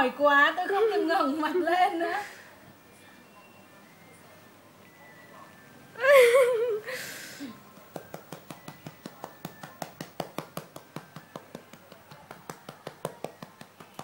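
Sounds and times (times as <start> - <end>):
hand patting a baby's back: 7.8 - 14.0.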